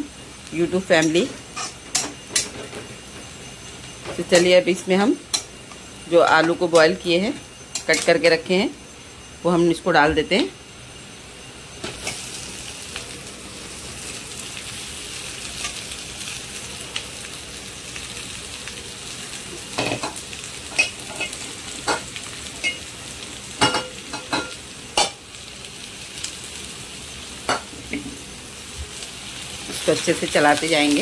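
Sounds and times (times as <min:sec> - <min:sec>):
potatoes sizzling in oil: 0:00.0 - 0:31.0.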